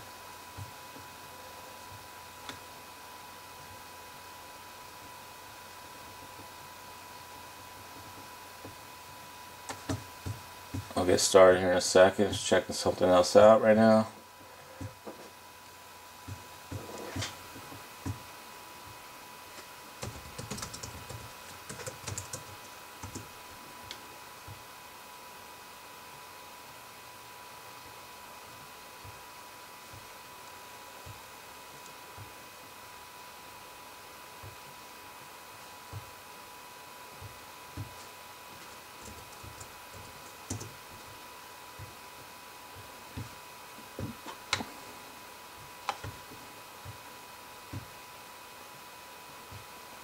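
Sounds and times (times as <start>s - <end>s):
faint steady tone and hiss: 0.0s - 50.0s
computer keyboard typing: 9.7s - 11.0s, 20.0s - 23.3s, 37.8s - 40.8s.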